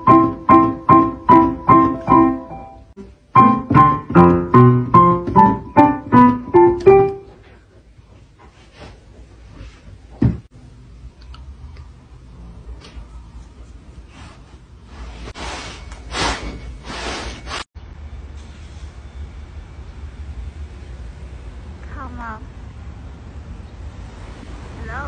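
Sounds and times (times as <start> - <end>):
digital piano notes: 0.0 - 7.4
thump: 10.2 - 10.5.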